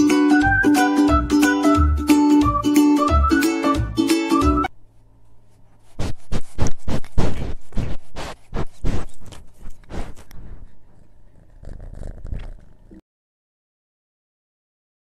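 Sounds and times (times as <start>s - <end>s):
knocks and scrapes on microphone: 5.8s - 10.6s.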